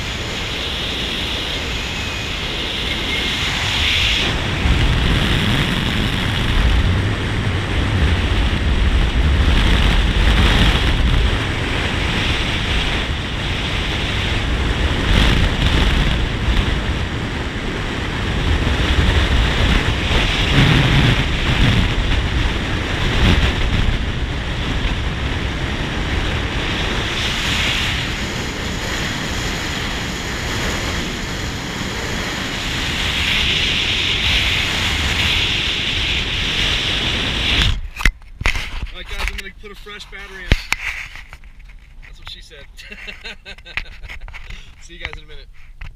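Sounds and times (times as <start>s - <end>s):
tyre and road rumble: 0.0s - 45.9s
wind rushing over microphone: 0.0s - 45.9s.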